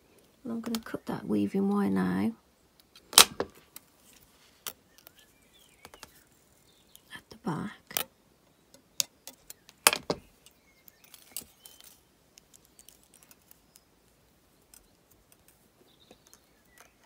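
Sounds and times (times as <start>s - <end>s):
wires and pliers clinking: 8.7s - 13.9s, 14.6s - 17.0s.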